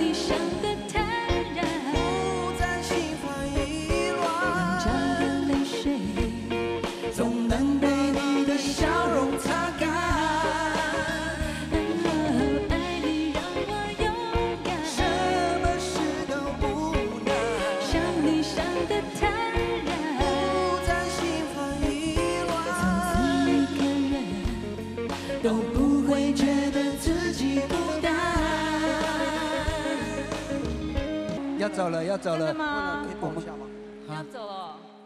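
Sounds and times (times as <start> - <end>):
woman singing: 0.0 - 30.6
backing band playing: 0.0 - 35.0
men singing: 2.0 - 13.5, 14.7 - 30.8.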